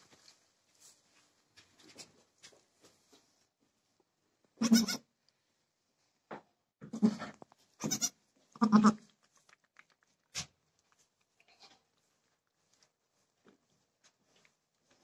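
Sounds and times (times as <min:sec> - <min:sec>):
goats bleating: 0:06.9 - 0:09.0.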